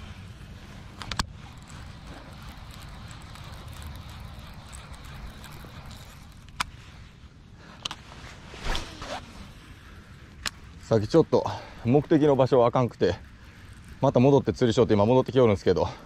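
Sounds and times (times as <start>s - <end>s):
low steady rumble: 0.0s - 16.0s
fishing reel winding: 1.0s - 6.7s, 9.8s - 15.8s.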